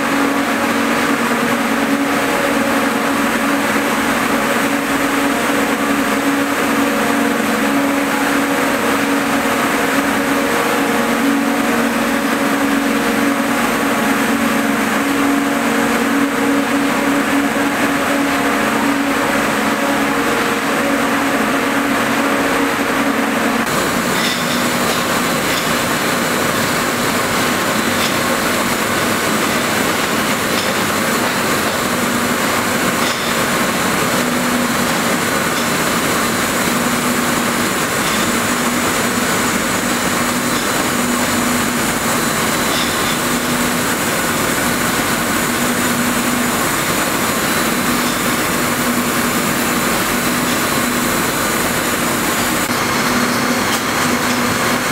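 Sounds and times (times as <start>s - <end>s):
machine hum: 0.0s - 54.9s.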